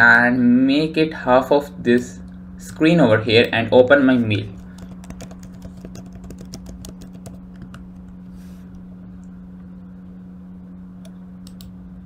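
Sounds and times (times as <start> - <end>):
low hum: 0.0 - 12.0
computer keyboard typing: 4.5 - 8.2.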